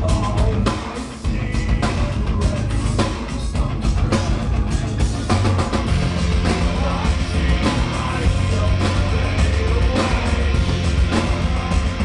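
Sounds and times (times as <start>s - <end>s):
bass guitar: 0.0s - 12.0s
distorted electric guitars: 0.0s - 12.0s
drum kit: 0.0s - 12.0s
singer yelling vocals: 6.3s - 12.0s.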